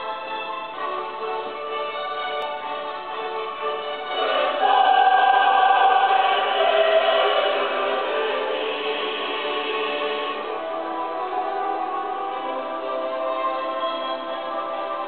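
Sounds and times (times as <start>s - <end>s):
choir singing held notes: 3.8s - 15.0s.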